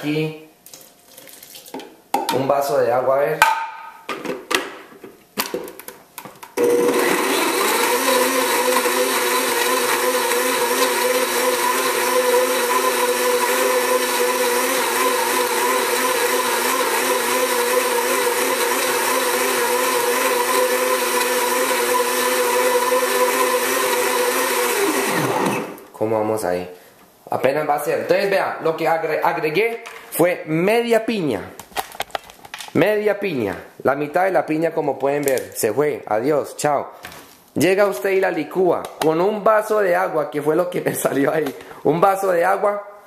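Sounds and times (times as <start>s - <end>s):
blender motor running: 6.6s - 25.8s.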